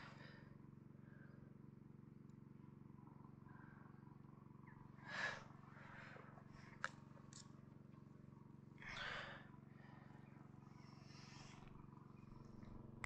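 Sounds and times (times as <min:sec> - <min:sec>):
steady low hum: 0:00.0 - 0:13.0
breathy exhalations: 0:08.8 - 0:09.5.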